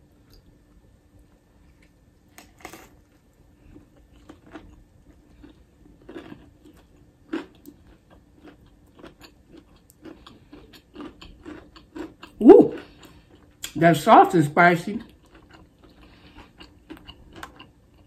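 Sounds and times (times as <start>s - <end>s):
soft food crunches: 1.3s - 13.8s, 15.0s - 18.0s
person chewing: 3.6s - 13.8s, 15.0s - 18.0s
mouth sounds: 12.4s - 12.8s.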